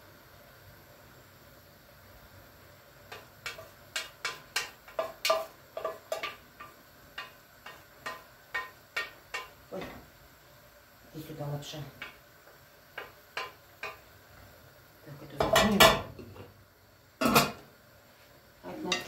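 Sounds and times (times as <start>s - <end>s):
utensil clicking against cookware: 3.1s - 9.6s.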